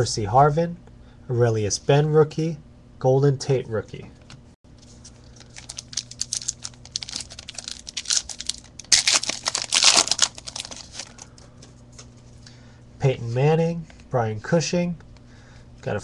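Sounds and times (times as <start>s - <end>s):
wrapper tearing and crinkling: 4.8s - 11.2s.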